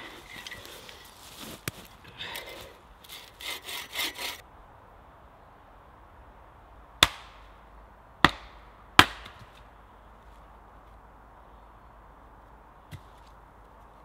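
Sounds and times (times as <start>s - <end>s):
bow saw rasping through log: 2.4s - 4.4s
hatchet splitting wood: 3.1s - 4.4s, 7.0s - 7.4s, 8.2s - 9.6s.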